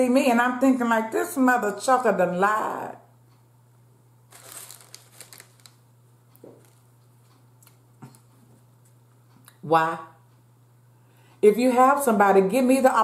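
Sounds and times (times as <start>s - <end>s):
food wrapping crinkling: 4.3s - 6.9s.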